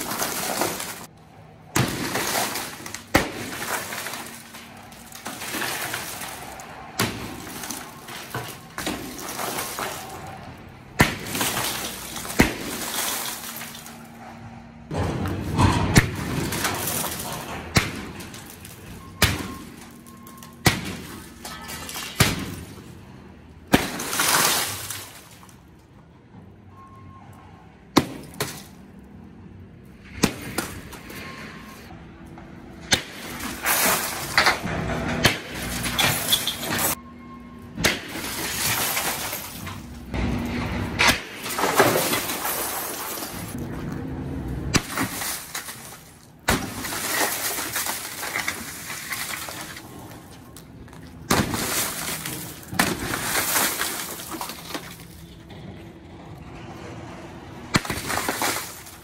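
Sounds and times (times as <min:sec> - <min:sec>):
breaking glass tinkling and falling: 0:00.0 - 0:01.1, 0:01.8 - 0:06.6, 0:07.2 - 0:10.4, 0:11.2 - 0:14.0, 0:18.2 - 0:22.8, 0:23.9 - 0:25.5, 0:35.6 - 0:37.0, 0:38.1 - 0:40.0, 0:41.4 - 0:43.6, 0:44.8 - 0:49.8, 0:51.4 - 0:55.2
hammer blows cracking glass: 0:00.0 - 0:14.2, 0:14.9 - 0:22.9, 0:23.6 - 0:25.6, 0:28.0 - 0:28.8, 0:30.1 - 0:31.1, 0:32.8 - 0:37.0, 0:37.8 - 0:43.6, 0:44.7 - 0:55.3, 0:57.7 - 0:59.0.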